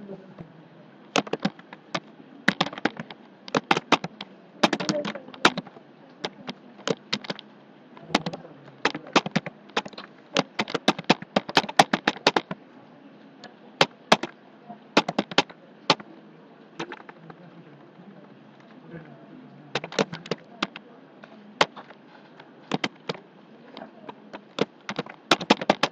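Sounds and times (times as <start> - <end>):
keyboard key clicks: 1.1 - 7.4, 8.1 - 12.6, 13.8 - 14.4, 15.0 - 16.1, 19.8 - 20.8, 22.7 - 23.2, 23.8 - 25.9.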